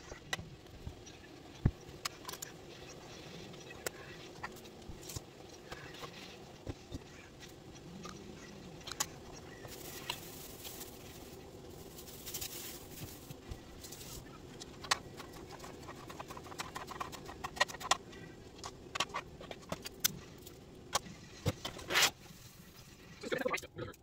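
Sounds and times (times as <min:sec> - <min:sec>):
steady low hum: 0:00.0 - 0:24.0
plastic bag rustling: 0:09.7 - 0:16.3.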